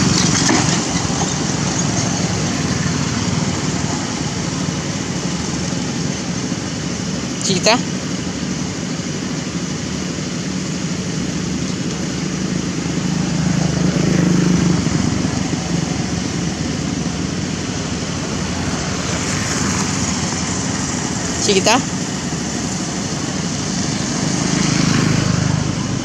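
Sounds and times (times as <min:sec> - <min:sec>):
outdoor background noise: 0:00.0 - 0:26.0
vehicle engine passing by: 0:12.6 - 0:26.0.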